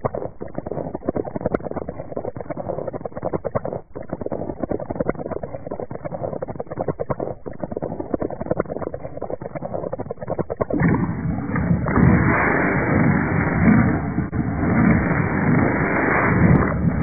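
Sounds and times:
lava crackling and popping: 0.0 - 17.0
dense rushing noise: 11.5 - 17.0.

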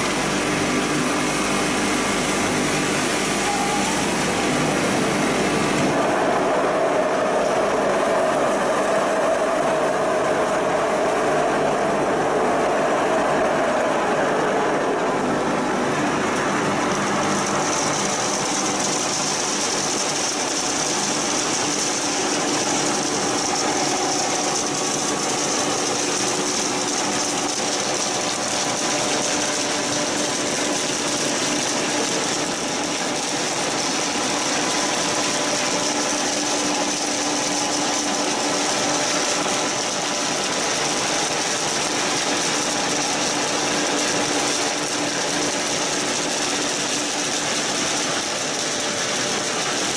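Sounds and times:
machinery hum and rattle: 0.0 - 49.9.

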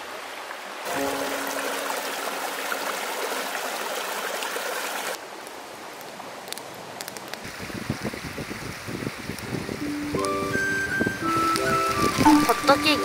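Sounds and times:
stream running over stones: 0.0 - 10.3, 11.2 - 13.0
campfire crackling: 5.1 - 13.0.

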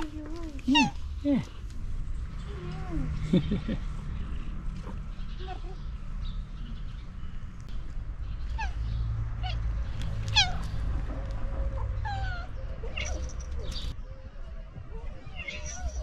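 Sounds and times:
cats meowing: 0.1 - 1.1, 9.4 - 10.9, 12.0 - 13.9, 15.0 - 16.0.

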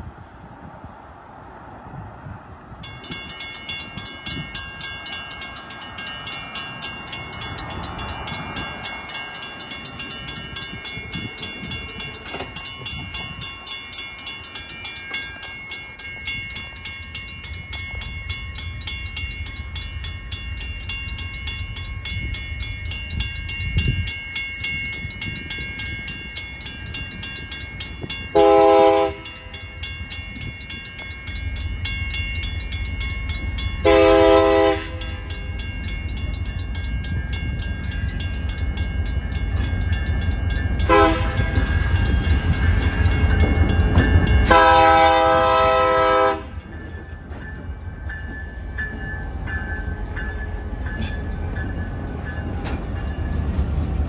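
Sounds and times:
diesel locomotive rumble: 0.0 - 54.0
railroad crossing bell ringing: 2.3 - 54.0
locomotive horn blast: 28.3 - 29.4, 33.8 - 35.1, 40.9 - 41.6, 44.4 - 46.6.

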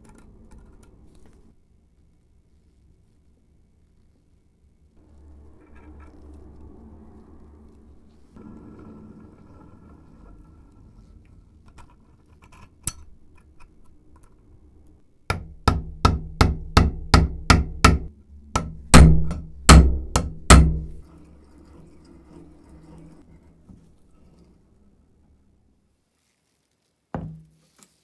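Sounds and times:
hammer striking metal pin: 15.3 - 21.0.

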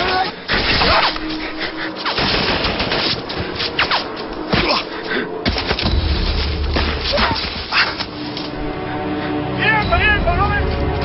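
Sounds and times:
action film music: 0.0 - 11.0.

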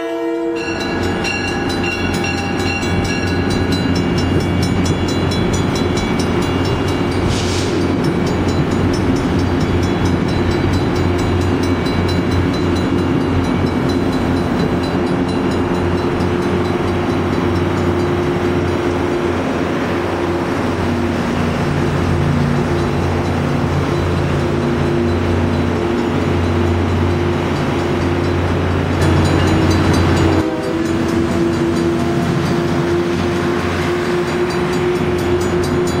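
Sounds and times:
diesel locomotive: 0.0 - 36.0
train passing at speed: 0.0 - 36.0
short hiss: 7.3 - 7.8.

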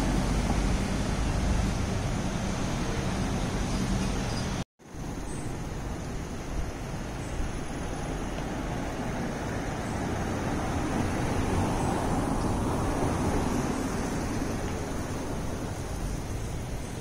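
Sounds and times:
distant traffic: 0.0 - 17.0.

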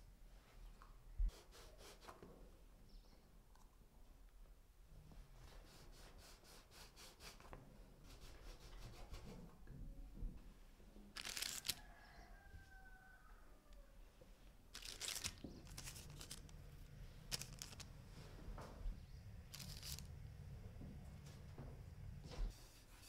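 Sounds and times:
baking paper crinkling: 11.1 - 12.0, 14.7 - 18.4, 19.5 - 20.2.

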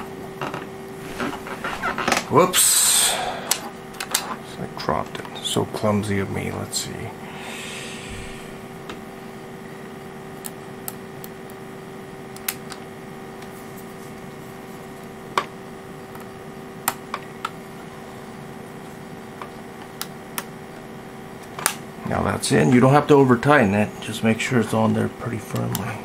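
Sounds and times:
steady background hum: 0.0 - 26.0.

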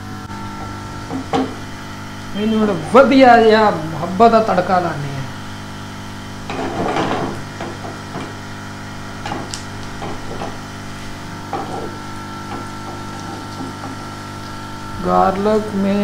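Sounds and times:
faint high whine: 0.0 - 7.3
background hum: 0.0 - 16.0
garlic frying: 0.0 - 16.0.

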